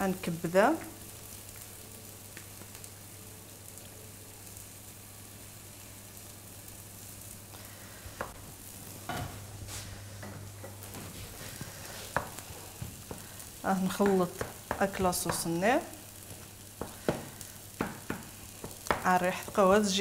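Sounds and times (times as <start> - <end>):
sauce sizzling in a frying pan: 0.0 - 20.0
wooden spoon scraping a pan: 9.1 - 15.6.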